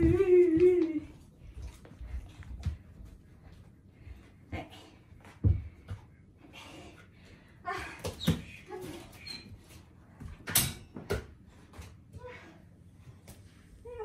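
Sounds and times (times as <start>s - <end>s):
dog playing on wooden floor: 0.0s - 4.2s.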